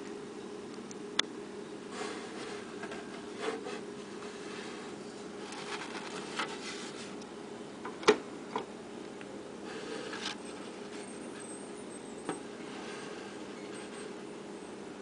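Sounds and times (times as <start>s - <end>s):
rubbing and scuffing handling noise: 2.1s - 7.2s.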